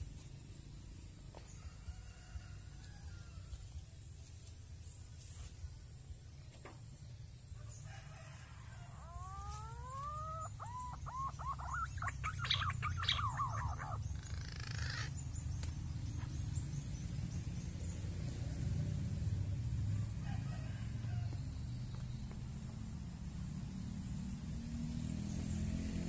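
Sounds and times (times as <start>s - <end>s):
bird calling: 9.0s - 15.2s.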